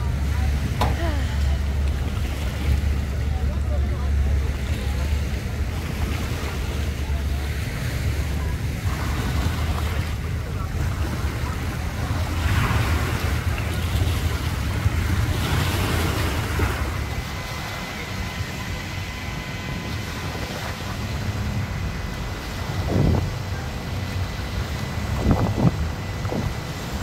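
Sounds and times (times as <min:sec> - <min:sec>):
water lapping at dock: 0:00.0 - 0:27.0
wind buffeting microphone: 0:04.8 - 0:27.0.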